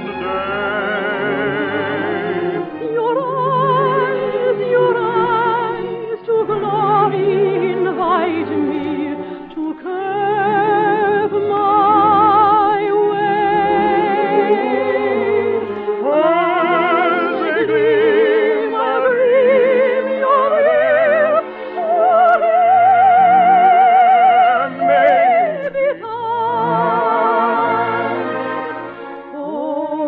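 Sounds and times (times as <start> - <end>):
operatic singing voice with vibrato: 0.0 - 30.0
orchestral accompaniment: 0.0 - 30.0.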